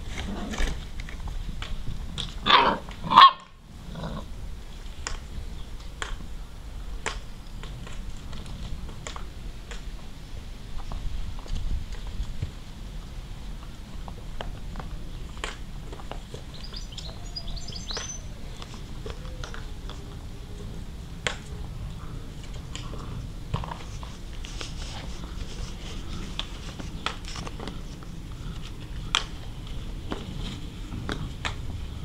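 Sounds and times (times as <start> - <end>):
low steady rumble: 0.0 - 32.0
puppies scuffling on grass: 21.6 - 32.0.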